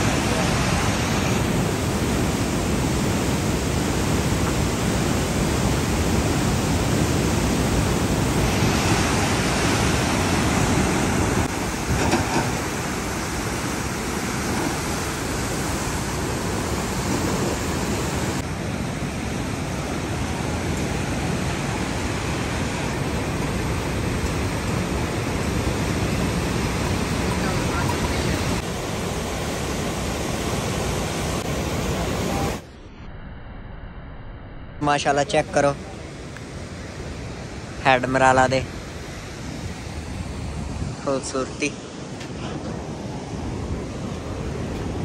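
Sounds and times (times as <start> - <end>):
water rushing through spillway: 0.0 - 32.6.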